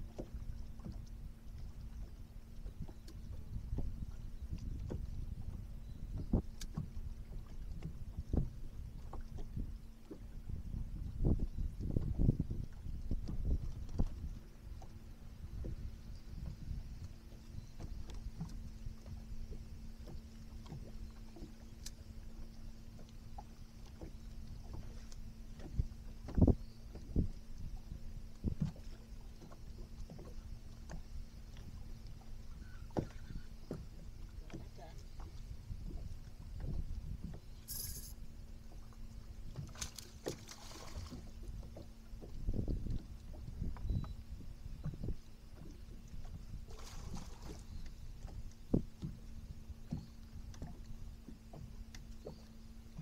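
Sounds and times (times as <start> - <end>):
water lapping against boat hull: 0.0 - 53.0
knocks on boat: 7.8 - 8.6.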